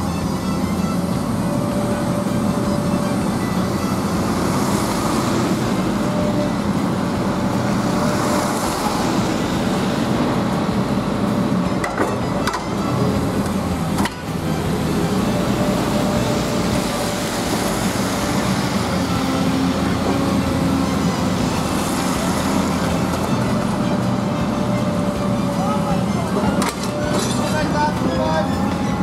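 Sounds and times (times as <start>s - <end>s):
excavator diesel engine running: 0.0s - 29.0s
vehicle passing by: 3.1s - 11.6s, 13.1s - 26.5s.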